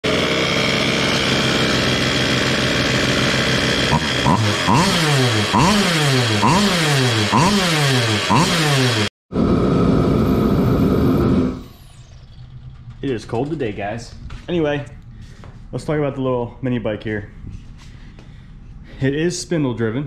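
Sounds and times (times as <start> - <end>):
small two-stroke engine revving: 0.0 - 9.1.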